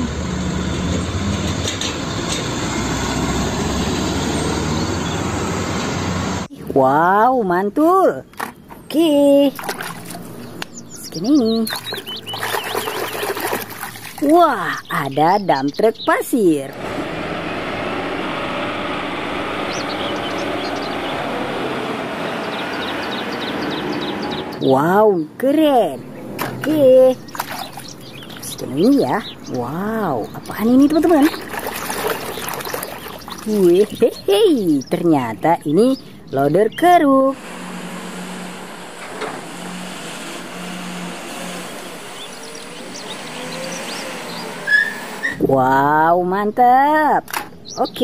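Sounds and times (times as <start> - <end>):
truck diesel engine passing: 0.0 - 6.5, 9.5 - 24.7, 25.8 - 45.5
road noise: 0.0 - 48.0.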